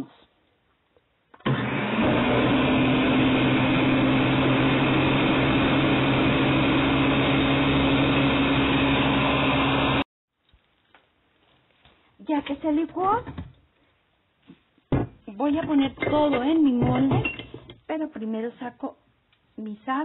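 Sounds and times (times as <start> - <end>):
blender motor running: 1.4 - 10.1.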